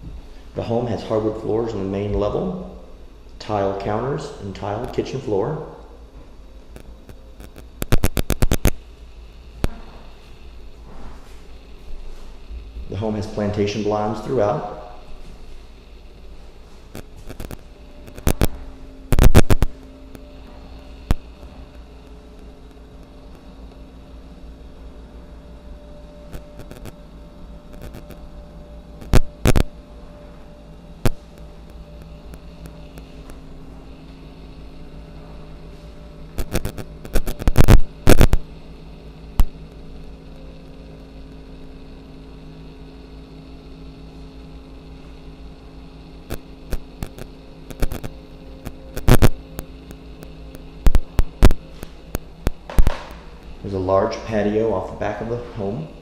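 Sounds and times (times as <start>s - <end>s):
steady hum of held tones: 0.0s - 56.0s
sharp clicks and knocks: 6.8s - 8.8s, 50.8s - 53.2s.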